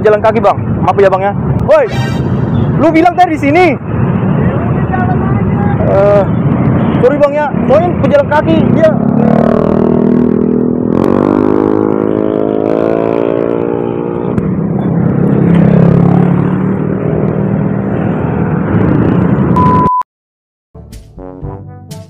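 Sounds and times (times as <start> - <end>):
engine revving up: 8.7 - 14.1.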